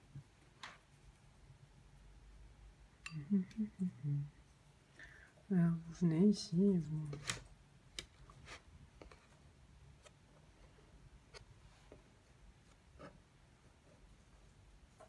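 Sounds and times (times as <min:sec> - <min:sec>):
brush dabbing on paper: 0:00.0 - 0:02.6.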